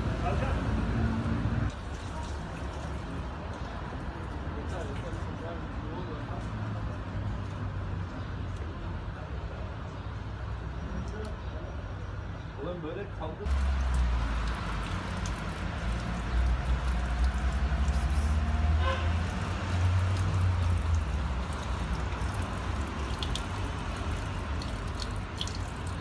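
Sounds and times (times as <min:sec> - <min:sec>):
water running from a tap: 0:13.5 - 0:26.0.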